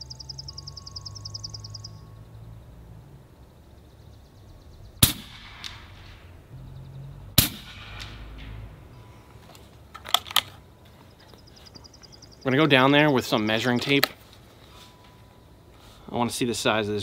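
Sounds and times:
air rifle shot crack: 0:05.0 - 0:06.5, 0:07.4 - 0:08.7.

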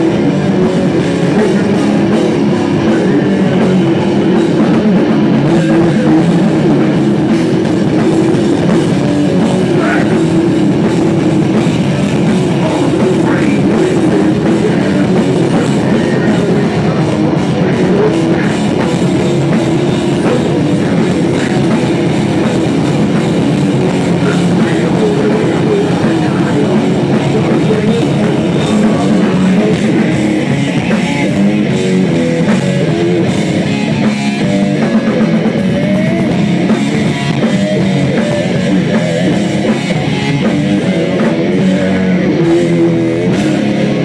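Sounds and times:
drum kit: 0:00.0 - 0:44.0
electric guitar: 0:00.0 - 0:44.0.

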